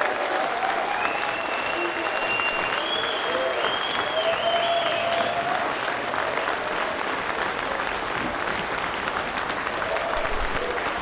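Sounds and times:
crowd applauding: 0.0s - 11.0s
crowd cheering: 0.0s - 11.0s
high whistle: 1.0s - 5.3s.

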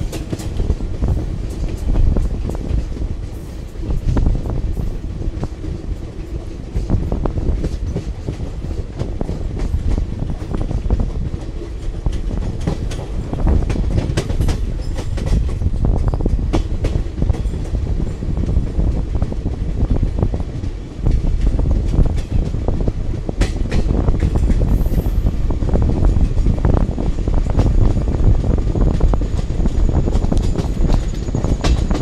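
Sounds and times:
train coach rumbling: 0.0s - 32.0s
wheels clattering on track: 0.0s - 32.0s.

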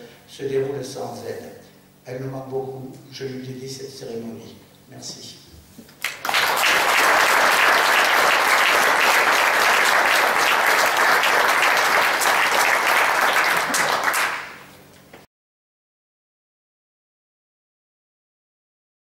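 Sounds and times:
audience applauding: 6.0s - 14.7s.

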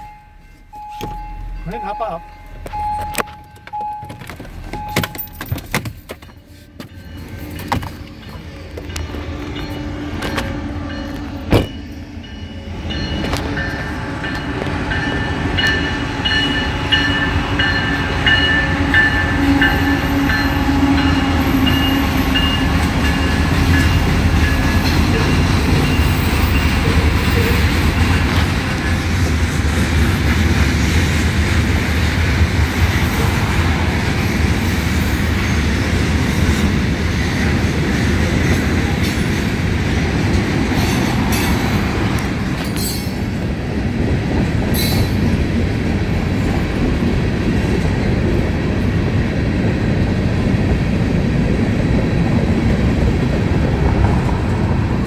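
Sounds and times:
crossing bell dinging: 0.0s - 29.0s, 42.4s - 43.4s
diesel locomotive rumble: 0.0s - 55.0s
train cars clickety-clack: 0.0s - 55.0s.

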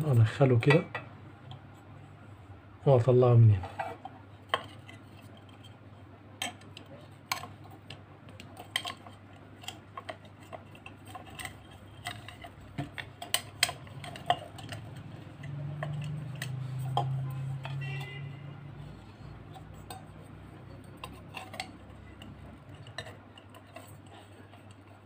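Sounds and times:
low steady hum: 0.0s - 25.0s
lamp parts clicking and tapping: 6.4s - 25.0s.

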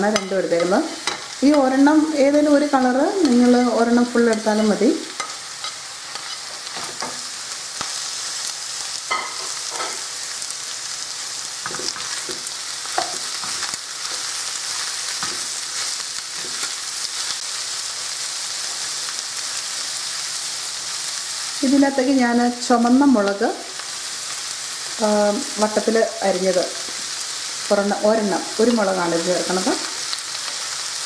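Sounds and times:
spoon knocking and scraping pan: 0.0s - 1.8s, 4.2s - 7.3s, 9.1s - 10.1s, 11.6s - 14.3s, 15.1s - 15.6s, 16.3s - 16.7s
food sizzling in a wok: 0.0s - 31.0s.

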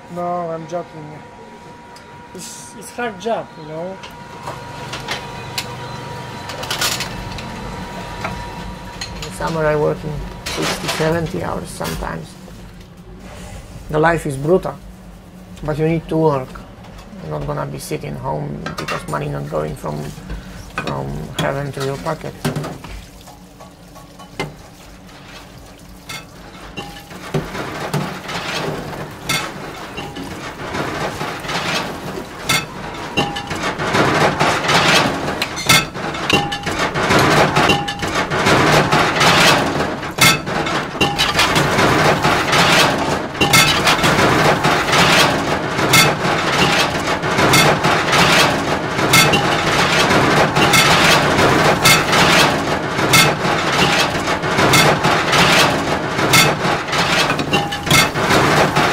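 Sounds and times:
dishes clattering in a sink: 20.0s - 58.9s.

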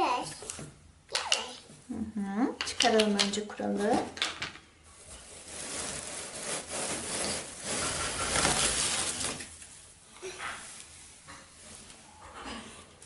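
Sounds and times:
plastic branches rustling against cardboard: 5.0s - 10.0s.

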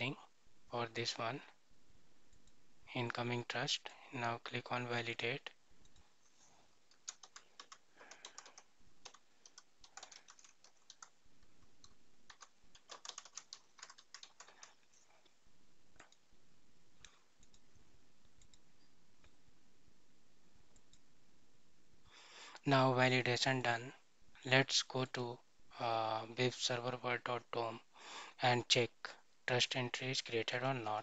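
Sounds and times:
computer keyboard typing: 6.9s - 15.0s.

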